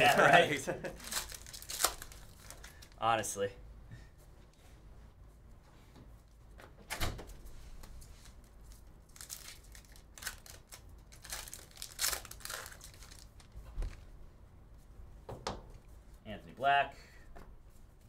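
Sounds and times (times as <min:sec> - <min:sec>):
cards swiping and crinkling: 0:00.9 - 0:03.0.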